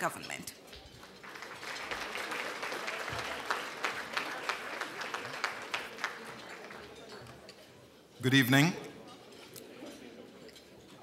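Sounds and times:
audience applauding: 0:01.0 - 0:07.4.

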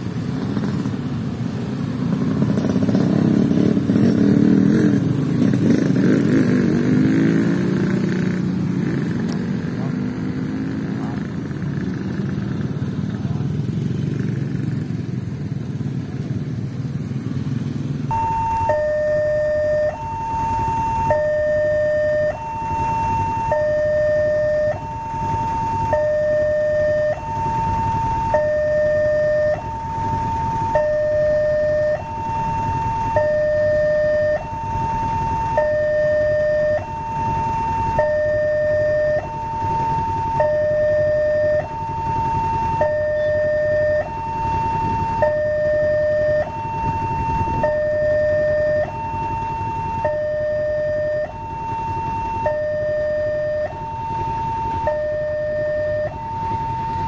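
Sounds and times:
motorbike traffic: 0:00.0 - 0:57.0
level crossing two-tone alarm: 0:18.1 - 0:57.0.

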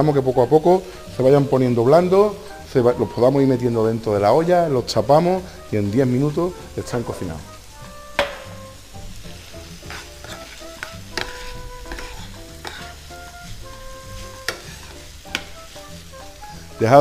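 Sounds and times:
bacon sizzling in a frying pan: 0:00.1 - 0:17.0.

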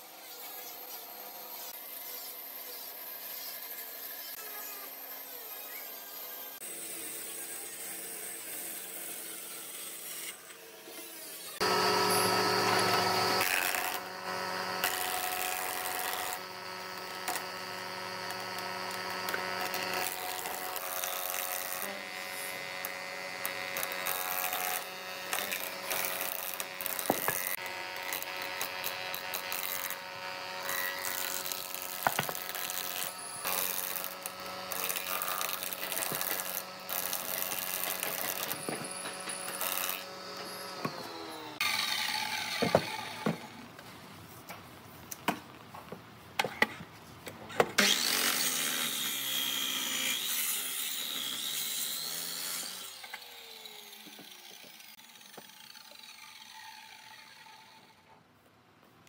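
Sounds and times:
planer humming: 0:11.6 - 0:43.7.

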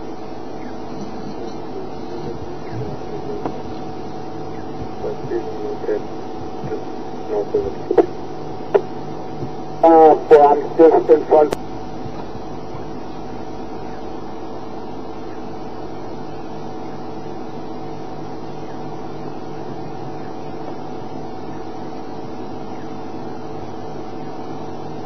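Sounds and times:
machine hum with held tones: 0:00.0 - 0:25.0.

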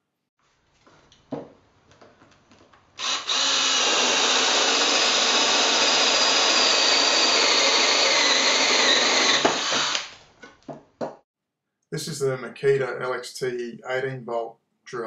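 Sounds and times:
cordless drill boring into wood: 0:03.0 - 0:10.2.

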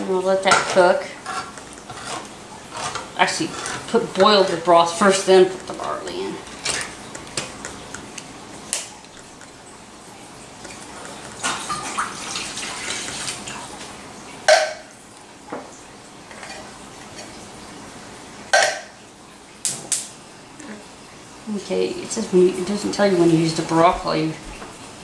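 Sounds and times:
liquid pouring: 0:01.2 - 0:15.0.

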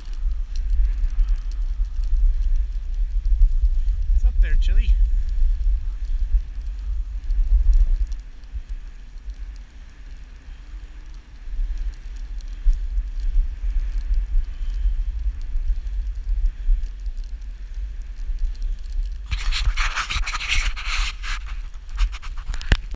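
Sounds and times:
low sled rumble: 0:00.0 - 0:22.9
runners scraping hiss: 0:00.0 - 0:22.9
fabric rubbing on camera: 0:18.4 - 0:22.9.

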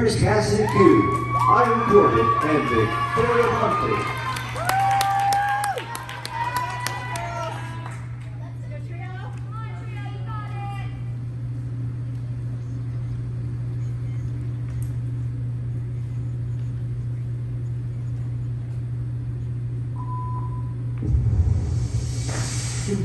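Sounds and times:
steady low hum: 0:00.0 - 0:23.0
loud rush of noise: 0:21.0 - 0:23.0.

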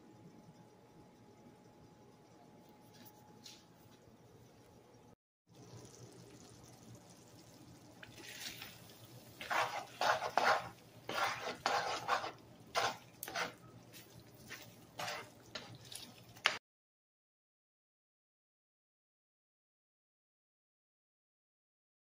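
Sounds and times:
spoon stirring food in pan: 0:05.6 - 0:16.6.

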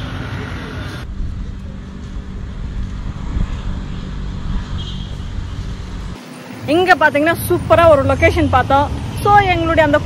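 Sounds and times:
motor vehicle rumble: 0:00.0 - 0:10.0
wind noise on microphone: 0:01.0 - 0:06.2.

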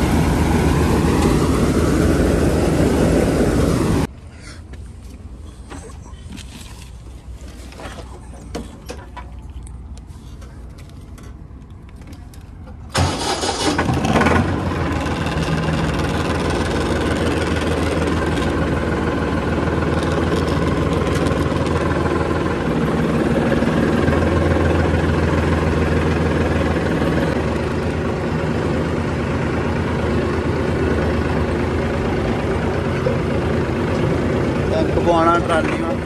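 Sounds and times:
large diesel engine running: 0:00.0 - 0:04.1, 0:12.8 - 0:36.0.

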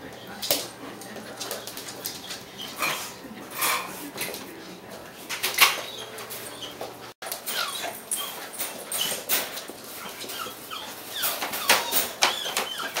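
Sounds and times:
claws clicking on hard floor: 0:00.4 - 0:02.4
puppies whining and yipping: 0:05.6 - 0:13.0.

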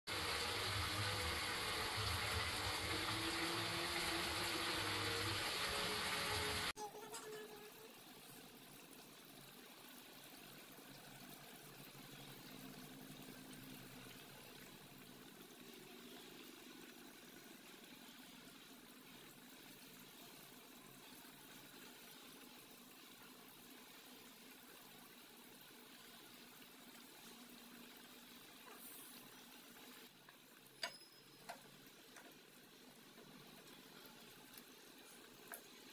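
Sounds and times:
curry bubbling in a pot: 0:07.4 - 0:35.9.

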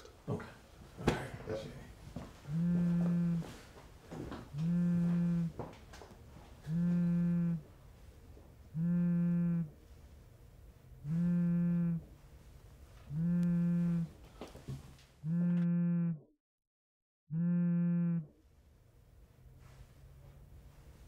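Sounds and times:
phone vibrating on stone table: 0:02.5 - 0:03.5, 0:04.5 - 0:05.6, 0:06.6 - 0:07.7, 0:08.7 - 0:09.8, 0:11.0 - 0:12.1, 0:13.1 - 0:14.1, 0:15.2 - 0:16.3, 0:17.3 - 0:18.4.

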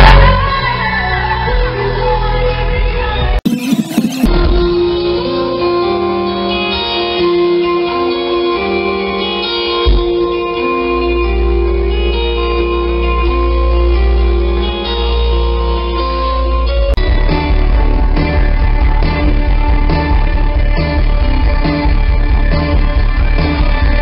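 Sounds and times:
rock band playing: 0:02.8 - 0:24.0
heavy low bass: 0:15.2 - 0:24.0.

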